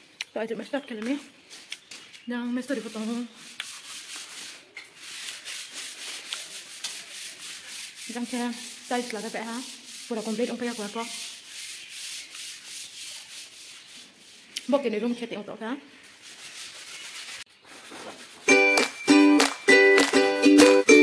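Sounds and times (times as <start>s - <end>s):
person speaking: 2.3s - 3.5s, 8.0s - 11.4s
scratchy rubbing noise: 2.7s - 14.5s, 16.0s - 18.6s.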